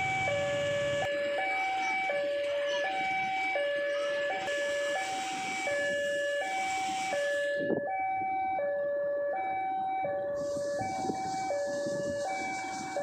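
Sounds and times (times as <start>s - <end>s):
two-tone electronic warning signal: 0.0s - 7.8s, 10.4s - 13.0s.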